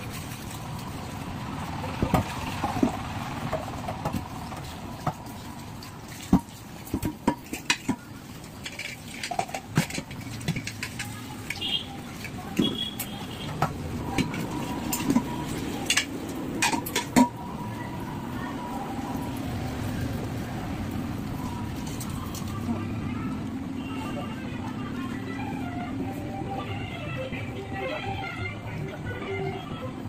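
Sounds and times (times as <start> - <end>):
metal pots and utensils clinking: 2.0 - 17.5.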